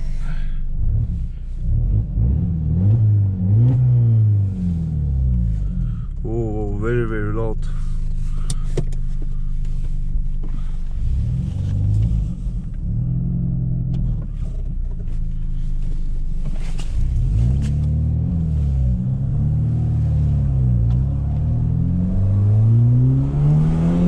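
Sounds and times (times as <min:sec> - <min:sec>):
loud car engine revving: 0:00.8 - 0:06.0, 0:10.9 - 0:14.5, 0:16.5 - 0:24.0.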